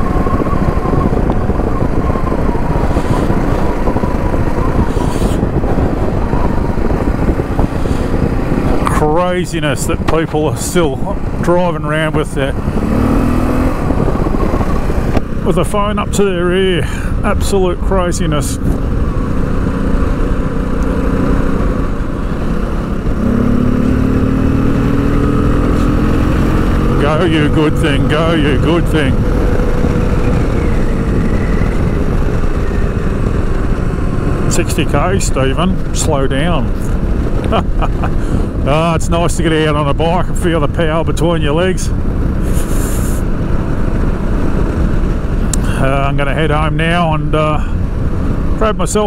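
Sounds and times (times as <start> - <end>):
motorcycle engine running: 0.0 - 49.0
steady whine: 0.0 - 49.0
wind rushing over microphone: 0.0 - 49.0.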